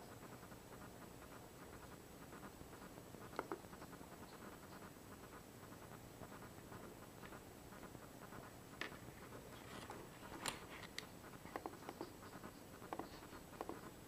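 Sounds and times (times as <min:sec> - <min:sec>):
low room hiss: 0:00.0 - 0:14.0.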